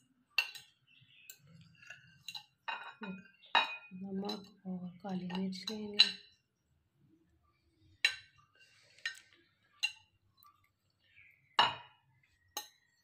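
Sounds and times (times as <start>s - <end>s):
metal spoon clinking on glass: 0.3s - 4.6s, 5.2s - 6.3s.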